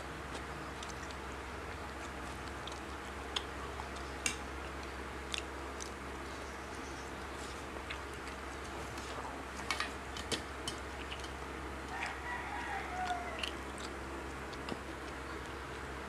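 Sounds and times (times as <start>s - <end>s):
eating clicks and smacks: 0.2s - 6.4s, 7.2s - 16.0s
rooster crowing: 11.9s - 13.6s.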